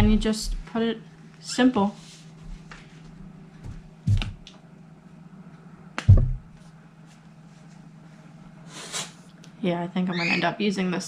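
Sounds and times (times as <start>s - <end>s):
low hum: 0.0s - 1.2s, 2.5s - 7.0s
sharp knocks on a table: 6.0s - 6.4s.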